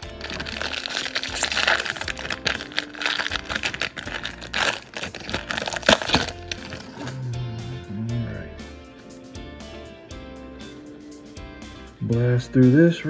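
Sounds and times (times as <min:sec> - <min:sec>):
foil wrapper crinkling and tearing: 0:00.0 - 0:07.1
sharp crackle: 0:00.0 - 0:07.1.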